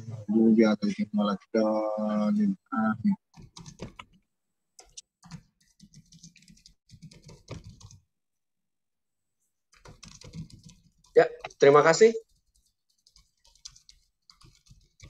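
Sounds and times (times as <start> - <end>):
typing on computer keyboard: 3.3 - 4.2, 4.8 - 8.0, 9.7 - 11.6, 12.2 - 15.0.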